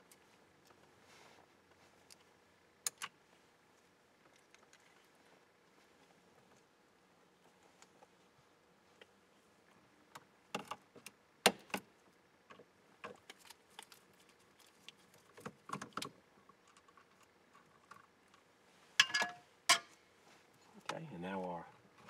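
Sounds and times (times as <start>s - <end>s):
parts clattering: 19.0s - 20.0s.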